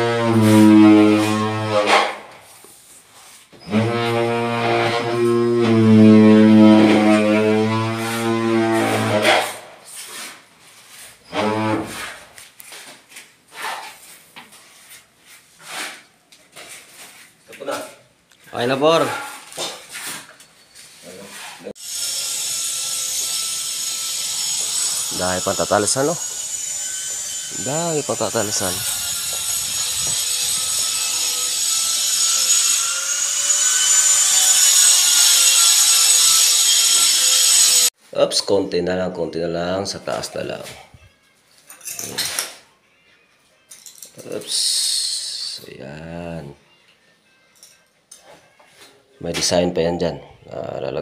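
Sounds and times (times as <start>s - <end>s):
angle grinder grinding tile: 0.0s - 12.8s, 21.2s - 37.9s
tile scraping and rubbing: 8.0s - 17.9s, 19.0s - 21.8s.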